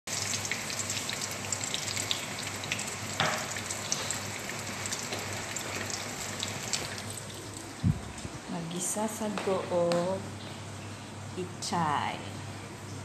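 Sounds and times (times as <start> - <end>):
omelette sizzling in oil: 0.1 - 7.8.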